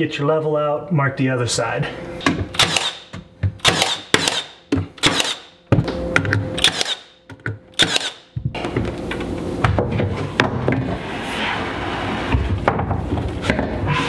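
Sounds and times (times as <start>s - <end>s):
nail gun firing into wood: 2.5s - 5.5s, 6.6s - 7.2s, 7.8s - 8.3s.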